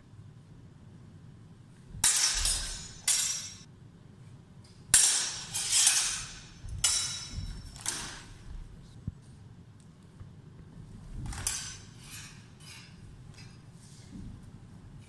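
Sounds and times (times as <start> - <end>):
sword blades clashing: 2.0 - 3.7, 4.9 - 8.4, 11.3 - 13.6.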